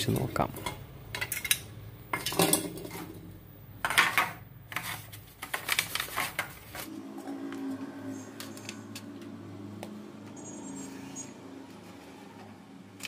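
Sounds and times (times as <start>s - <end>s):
foil tray crinkling: 4.8s - 6.9s.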